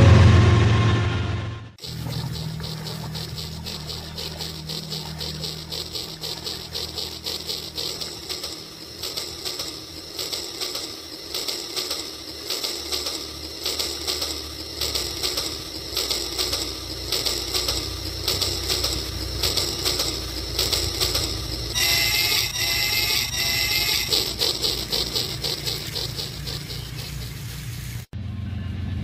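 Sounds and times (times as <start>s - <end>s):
low motor hum: 0.0s - 29.0s
wavering high-pitched tone: 1.8s - 27.3s
toy train wheels rattling: 1.8s - 28.1s.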